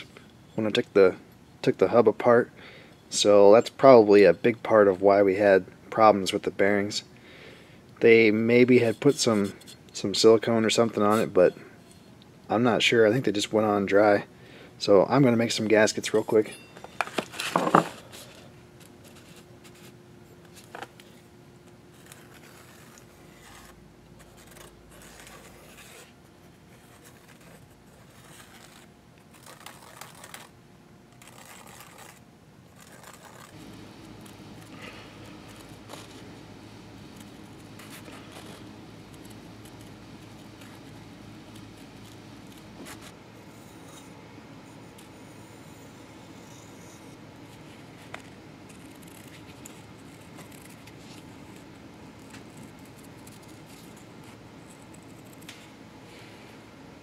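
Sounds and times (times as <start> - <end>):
steady low hum: 0.0 - 57.0
pen scratching on paper: 22.0 - 26.1, 26.7 - 30.5, 31.2 - 32.2, 32.8 - 33.6, 48.7 - 51.6
paper rustling: 26.7 - 30.5, 31.2 - 32.2, 32.8 - 36.3, 47.6 - 55.6
scissors snipping paper: 26.8 - 30.5, 31.2 - 32.2, 32.8 - 33.6, 48.1 - 54.1.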